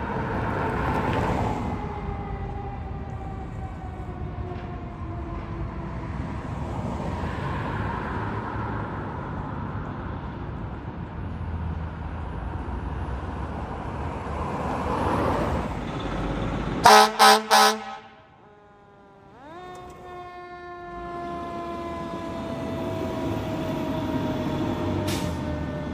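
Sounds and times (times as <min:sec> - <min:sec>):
fire engine running: 0:00.0 - 0:25.9
air horn blasts: 0:16.8 - 0:19.2.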